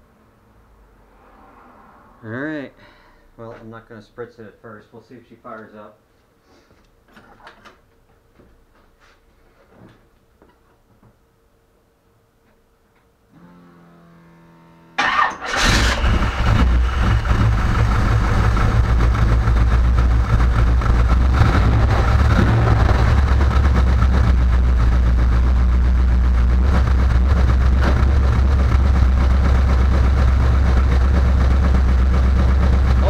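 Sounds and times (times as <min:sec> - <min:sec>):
car engine cranking and idling: 0:15.0 - 0:33.0.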